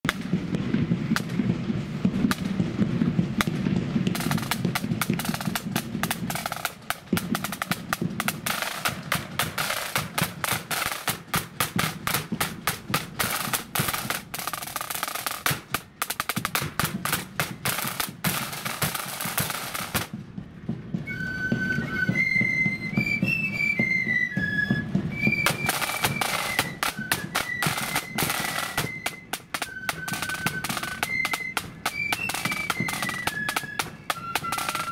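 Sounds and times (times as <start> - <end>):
snare and bass drums beating: 0.0 - 34.9
high pitched flute melody: 4.1 - 15.5, 21.0 - 34.9.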